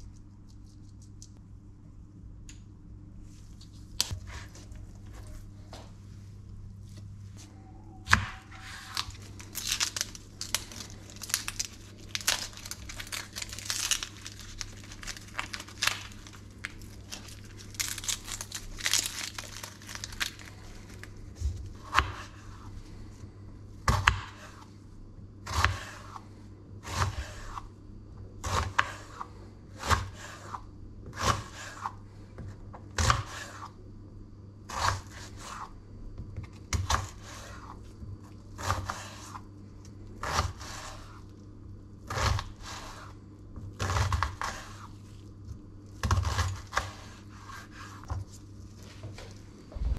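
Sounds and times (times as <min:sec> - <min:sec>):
onion skin crackling and rustling: 0:08.5 - 0:22.9.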